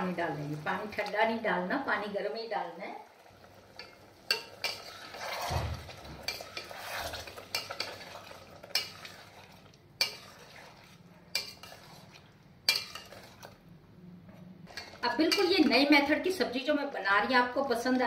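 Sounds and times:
gravy sizzling: 0:00.0 - 0:13.7, 0:14.6 - 0:18.0
spoon scraping through gravy: 0:03.8 - 0:13.6.

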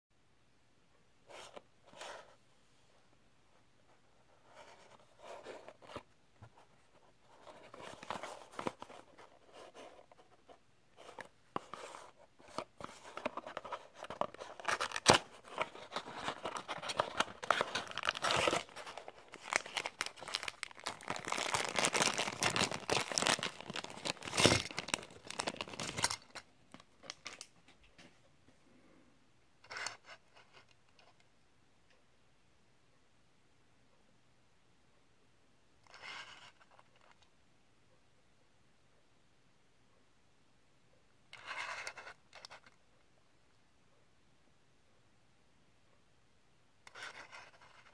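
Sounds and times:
packaging rustling and crinkling: 0:07.3 - 0:10.1, 0:11.0 - 0:27.5
cardboard box being opened: 0:11.0 - 0:26.1.

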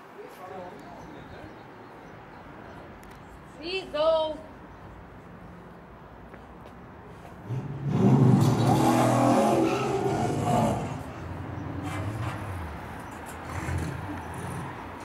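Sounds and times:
vehicle engine passing: 0:07.2 - 0:15.0.

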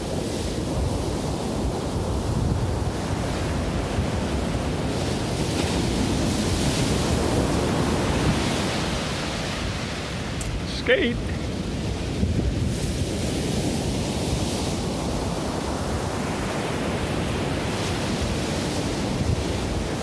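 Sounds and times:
ocean waves breaking on beach: 0:00.0 - 0:20.0
wind buffeting microphone: 0:00.0 - 0:20.0.

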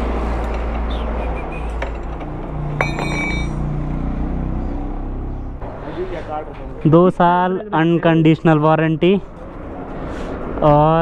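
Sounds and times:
hand tool on wheel axle: 0:01.7 - 0:03.7
sharp metallic clink: 0:02.8 - 0:03.9.

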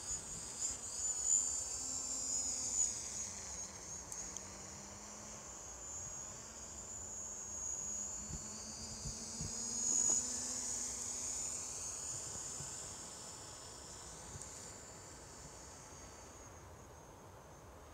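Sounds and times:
distant drone motors whining: 0:00.0 - 0:17.3.

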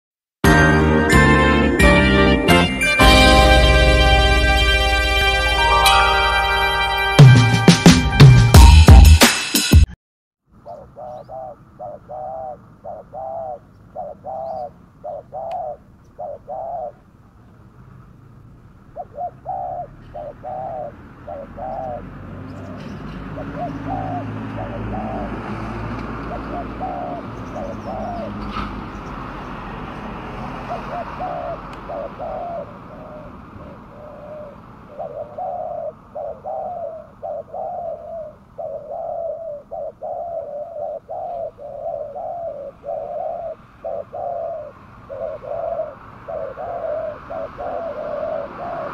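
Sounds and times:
passing car rumble: 0:10.5 - 0:48.9
dove cooing: 0:10.6 - 0:17.1, 0:18.9 - 0:29.0, 0:30.1 - 0:48.9.

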